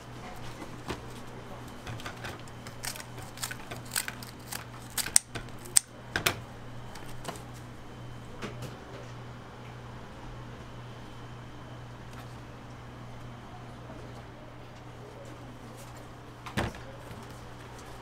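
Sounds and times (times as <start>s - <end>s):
steady low hum: 0.0s - 18.0s
scissors snipping: 2.6s - 5.9s.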